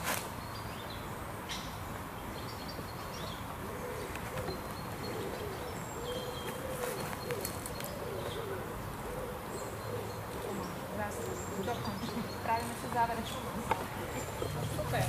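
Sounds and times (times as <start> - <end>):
small birds chirping: 0.0 - 15.0
dove cooing: 3.5 - 15.0.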